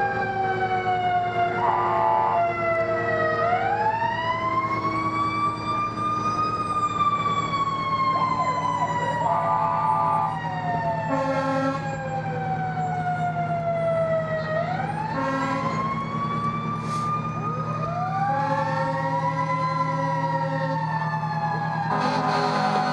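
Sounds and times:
engine low rumble: 0:00.0 - 0:22.9
fire truck siren wailing: 0:00.0 - 0:22.9
short horn blasts: 0:11.1 - 0:11.8, 0:21.9 - 0:22.9.

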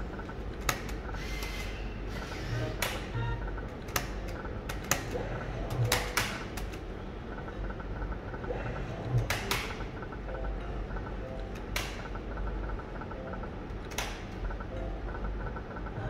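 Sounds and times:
low hum: 0:00.0 - 0:16.0
slot machine reel clicks: 0:00.0 - 0:16.0
faint electronic beeps: 0:01.8 - 0:03.7, 0:09.8 - 0:13.6.

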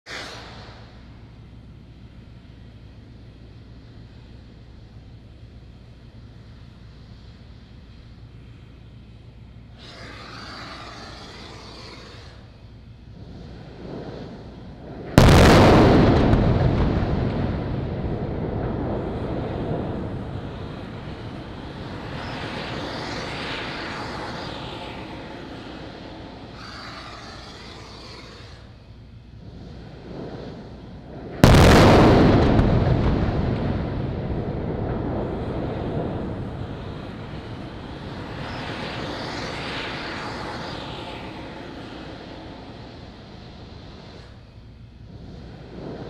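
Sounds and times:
explosion and fire rumble: 0:09.7 - 0:46.0.

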